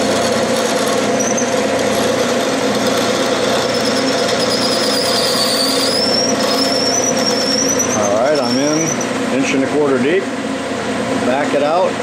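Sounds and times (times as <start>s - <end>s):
lathe humming: 0.0s - 11.2s
high squeal: 0.8s - 9.2s.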